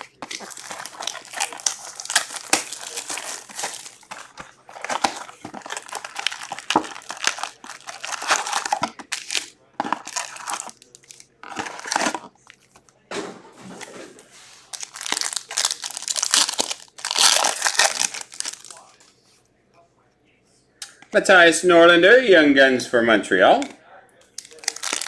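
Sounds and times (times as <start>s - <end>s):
foil packs crinkling: 0.0s - 12.6s, 14.6s - 19.0s, 24.4s - 25.0s.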